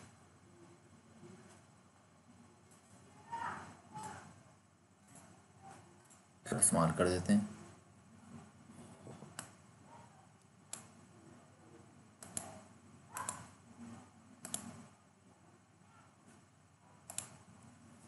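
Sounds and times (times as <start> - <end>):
computer mouse clicks: 9.2 - 9.6, 10.4 - 11.0, 12.2 - 13.6, 14.4 - 14.9, 17.0 - 17.4.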